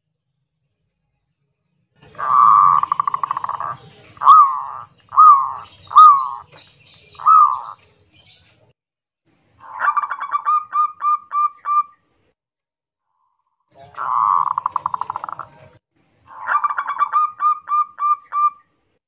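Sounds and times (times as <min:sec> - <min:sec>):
dove trill: 0:02.0 - 0:08.4, 0:13.8 - 0:15.6, 0:16.3 - 0:18.6
dove cooing: 0:02.1 - 0:07.8, 0:13.8 - 0:15.7.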